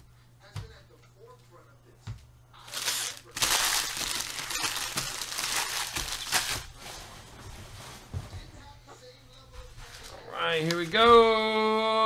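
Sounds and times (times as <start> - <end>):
foil wrappers crinkling: 2.6 - 7.4.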